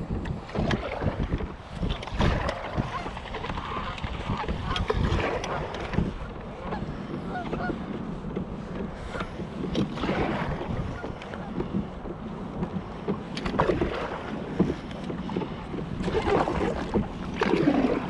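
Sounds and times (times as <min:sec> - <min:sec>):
water splashing against kayak hull: 0:00.0 - 0:18.0
wind on microphone: 0:00.0 - 0:18.0.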